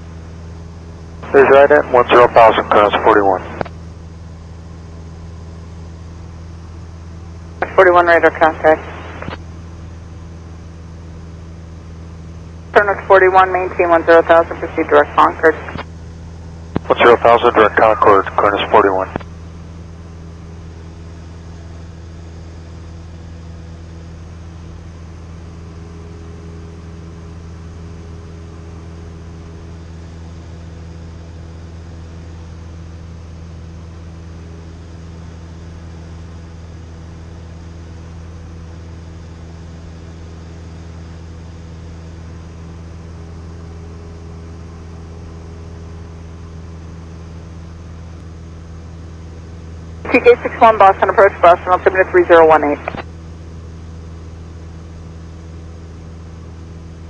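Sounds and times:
airplane engine droning: 0.0 - 57.0.

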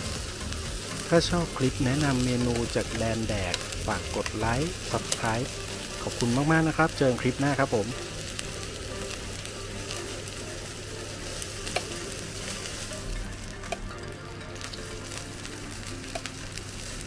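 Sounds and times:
meat sizzling on grill pan: 0.0 - 17.0.

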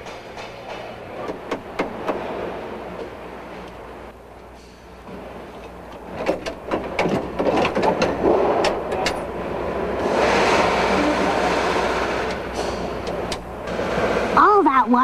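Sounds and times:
clicks and clanks of tools: 5.6 - 9.3.

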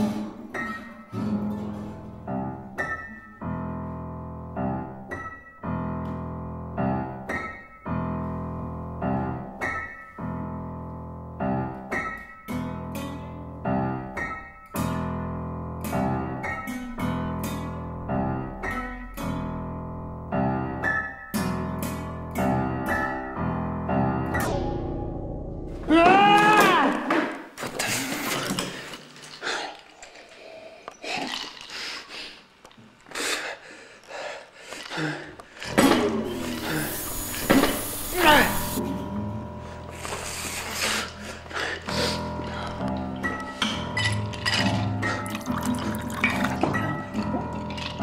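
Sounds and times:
upright piano chords: 0.0 - 25.9, 35.7 - 48.0.

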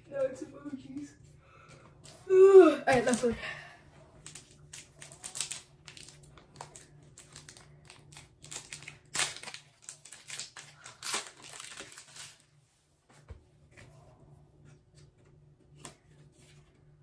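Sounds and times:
plastic wrapper crinkling: 4.2 - 12.5.

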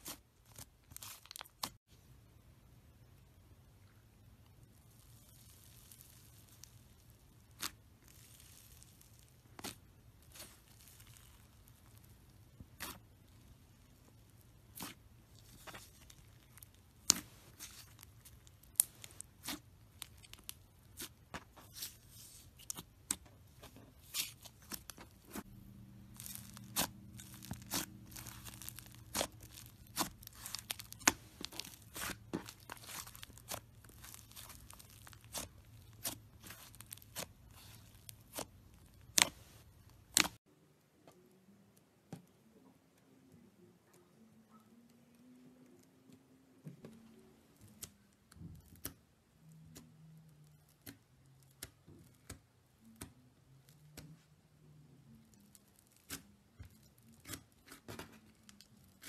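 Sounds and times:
hands squeezing slime: 4.8 - 13.4, 26.0 - 40.4
slime popping and crackling: 4.8 - 23.3, 24.0 - 40.4.

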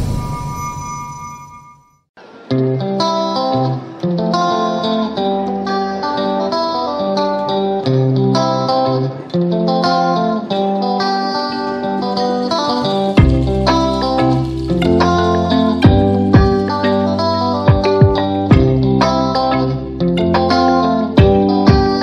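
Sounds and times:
plucked guitar melody: 2.2 - 22.0.

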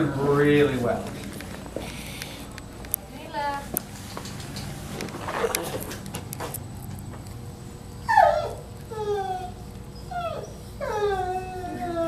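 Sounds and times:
small dog whining: 8.0 - 12.0.

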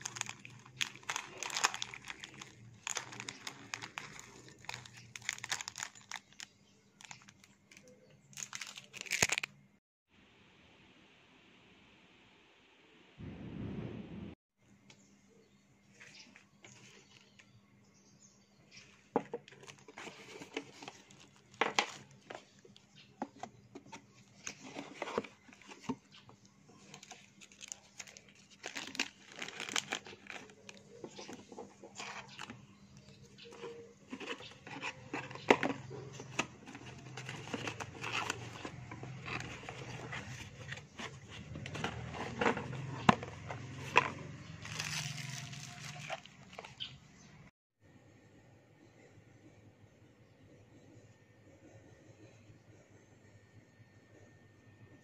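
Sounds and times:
cardboard box handling: 0.0 - 6.2, 19.2 - 22.5, 33.4 - 46.7
plastic wrapping crinkling: 0.0 - 9.5, 19.4 - 22.6, 26.7 - 46.9
low hum: 13.2 - 14.4.

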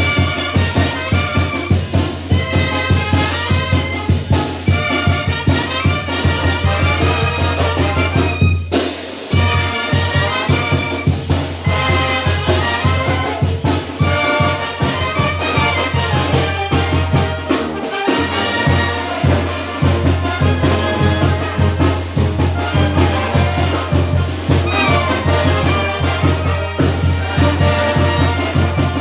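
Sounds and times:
bass drum and cymbal: 0.0 - 29.0
brass band playing dance music: 0.0 - 29.0
trumpets and trombones: 0.0 - 29.0.

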